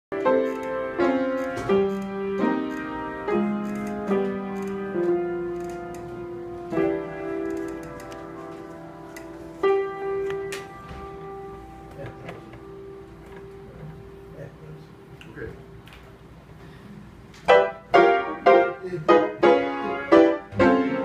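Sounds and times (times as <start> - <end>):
jazz piano chords: 0.1 - 21.0.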